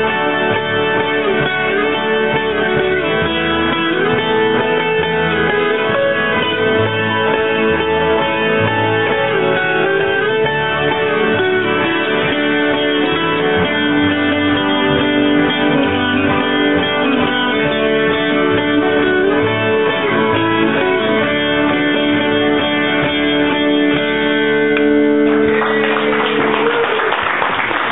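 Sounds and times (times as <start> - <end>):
applause: 25.2 - 27.9.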